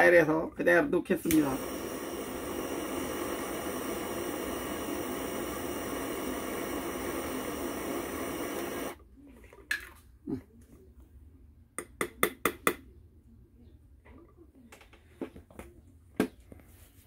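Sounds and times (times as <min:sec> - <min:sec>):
butane torch hissing: 0:01.2 - 0:09.0.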